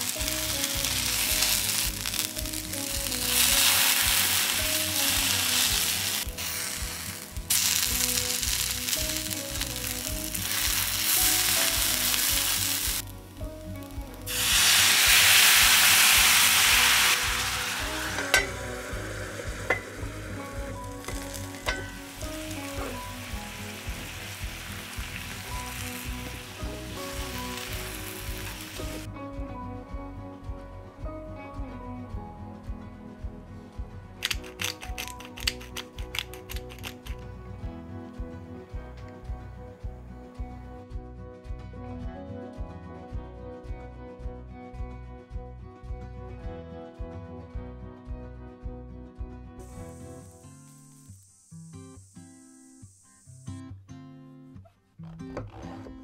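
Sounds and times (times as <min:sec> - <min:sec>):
sauce poured into hot pan: 0:00.0 - 0:13.4, 0:14.2 - 0:29.1, 0:34.2 - 0:37.2
food sizzling in oil: 0:00.0 - 0:29.1, 0:34.2 - 0:37.2, 0:49.6 - 0:53.6.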